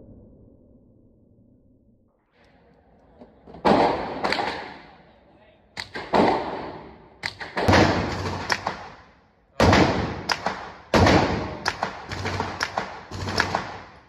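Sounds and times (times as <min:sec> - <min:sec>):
pistol shots echoing: 0:03.6 - 0:05.0, 0:05.8 - 0:14.0
faint distant gunshots: 0:05.8 - 0:14.0.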